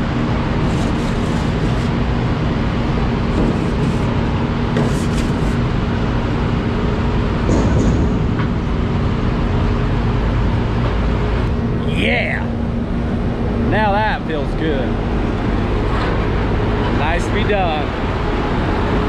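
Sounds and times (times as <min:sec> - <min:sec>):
conveyor and rollers running: 0:00.0 - 0:19.0.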